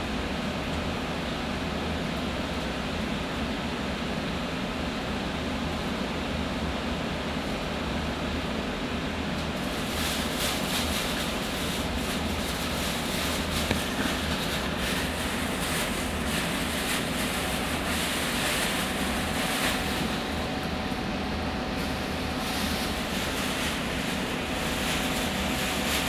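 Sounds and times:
hiss: 0:09.6 - 0:20.4, 0:21.8 - 0:26.0.

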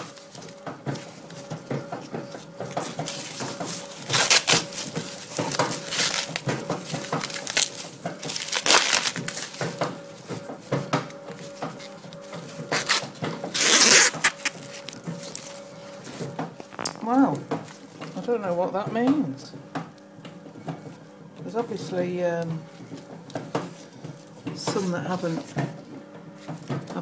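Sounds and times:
corn husk leaves crackling and tearing: 0:04.0 - 0:09.6, 0:12.8 - 0:15.6.

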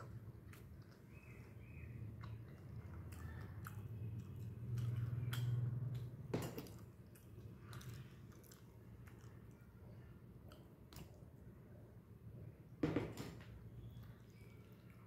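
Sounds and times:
person chewing food: 0:00.0 - 0:11.4.

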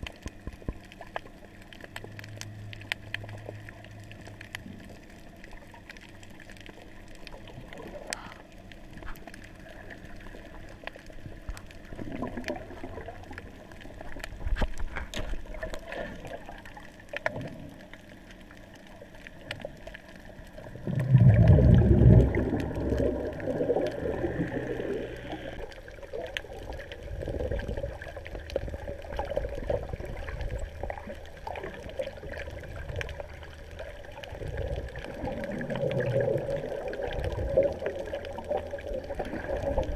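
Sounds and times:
faint clicks: 0:00.0 - 0:21.2
muffled underwater gurgling: 0:00.0 - 0:39.9
low rush of water: 0:19.2 - 0:39.9.

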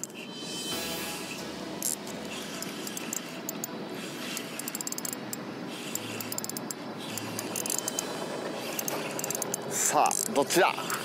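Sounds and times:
fishing reel drag clicking: 0:01.8 - 0:10.3.

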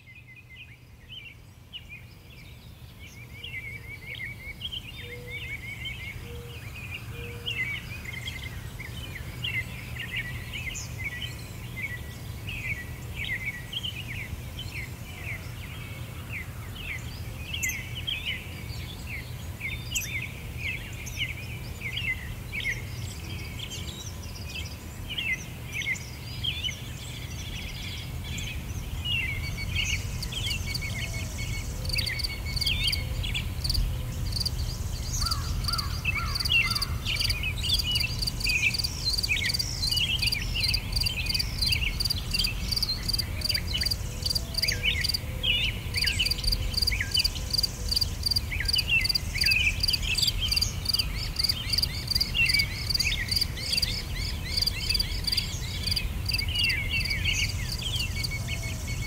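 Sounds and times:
birds chirping: 0:00.0 - 0:59.0
insect chirring: 0:33.6 - 0:34.5, 0:35.2 - 0:45.2.

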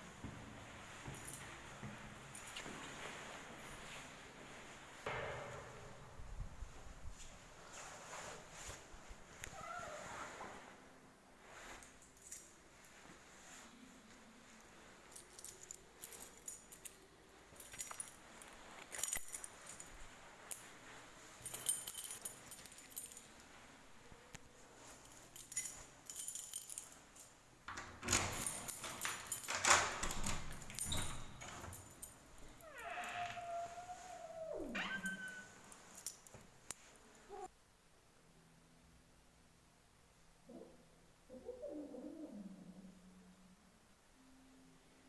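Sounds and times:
keys jangling: 0:15.1 - 0:20.7, 0:21.4 - 0:23.4, 0:24.8 - 0:32.7.

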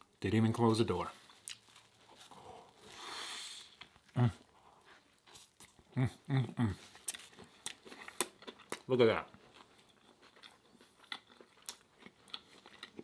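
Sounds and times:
chewing a sandwich: 0:01.2 - 0:13.0
soft breathy noise: 0:02.1 - 0:05.1.

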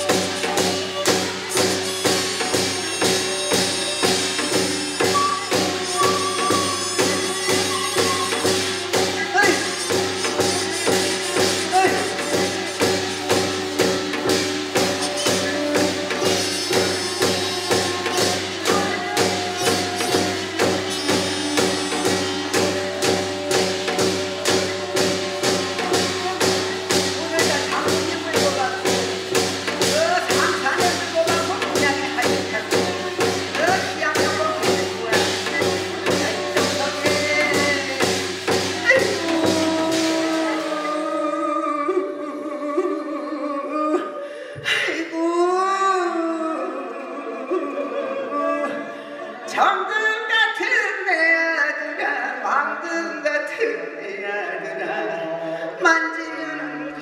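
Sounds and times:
sustained melody tones: 0:00.0 - 0:41.6
even percussion beat: 0:00.0 - 0:43.4.

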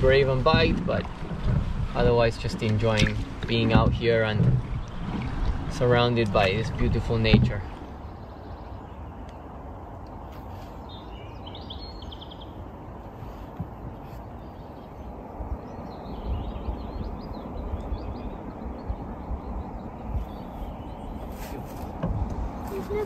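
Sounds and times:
soft low thumps: 0:00.0 - 0:07.9
low outdoor rumble: 0:00.0 - 0:23.0
small birds chirping: 0:02.0 - 0:23.0.

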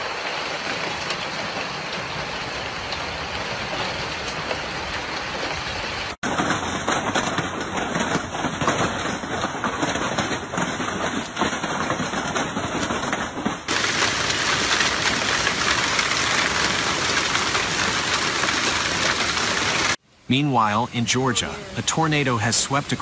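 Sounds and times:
hail and heavy rain pelting: 0:00.0 - 0:20.0, 0:20.6 - 0:23.0
sharp hailstone hits: 0:06.2 - 0:20.0.

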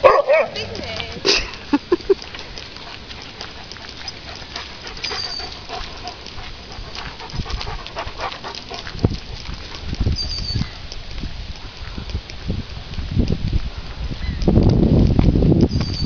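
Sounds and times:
dog panting: 0:02.1 - 0:09.8.

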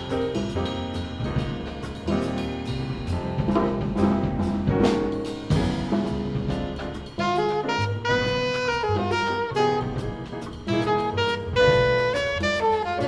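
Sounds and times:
drum kit cymbal strokes: 0:00.0 - 0:13.0
grand piano: 0:00.0 - 0:13.0
upright bass: 0:00.0 - 0:13.0
alto saxophone lead: 0:07.2 - 0:13.0.

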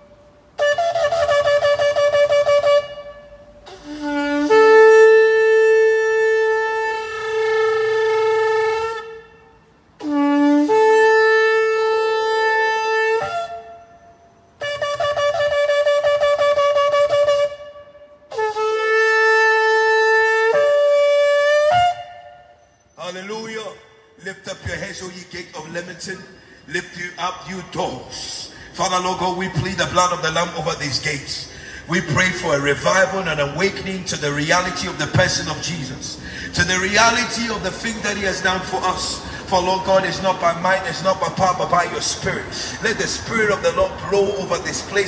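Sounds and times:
shofar blasts: 0:00.0 - 0:23.1.

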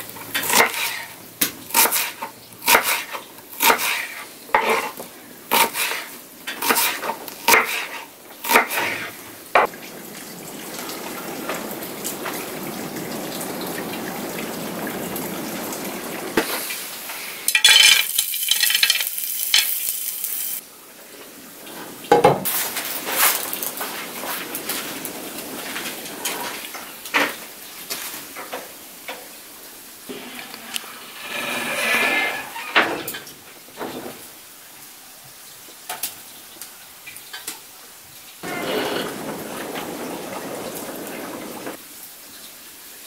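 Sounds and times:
food sizzling in frying pan: 0:00.0 - 0:09.2, 0:16.4 - 0:20.6
knife chopping onion on board: 0:01.7 - 0:04.9, 0:05.5 - 0:06.0, 0:06.6 - 0:09.0.

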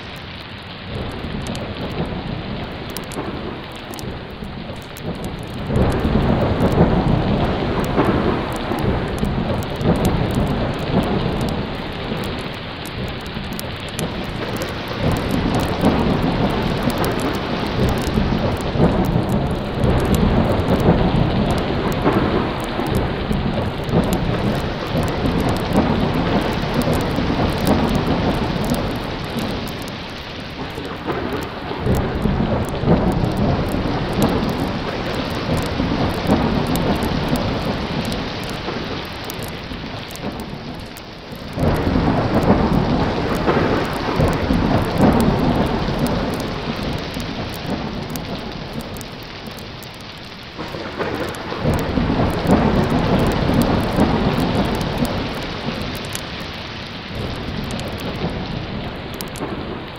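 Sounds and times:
heavy rain: 0:00.0 - 0:59.9
rolling thunder: 0:00.0 - 0:59.9.

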